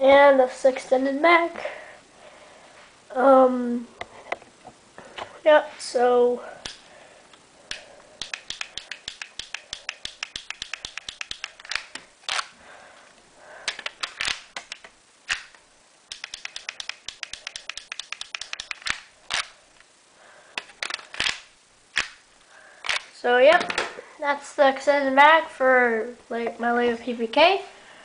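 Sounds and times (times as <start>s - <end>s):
plastic toy gun clicks: 7.7s - 12.5s.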